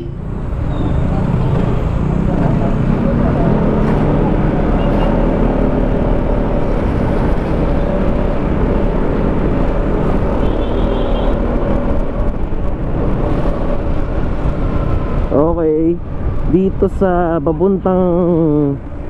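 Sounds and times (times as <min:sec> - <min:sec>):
wind noise on microphone: 0:05.7 - 0:15.4.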